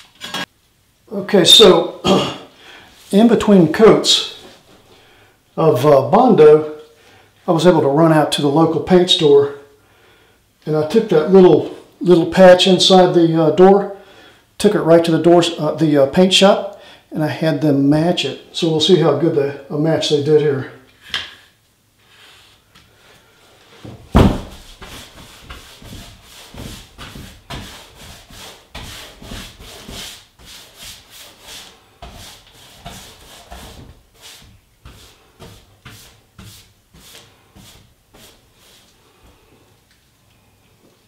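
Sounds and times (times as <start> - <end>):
foam paint roller rubbing: 23.5 - 39.0.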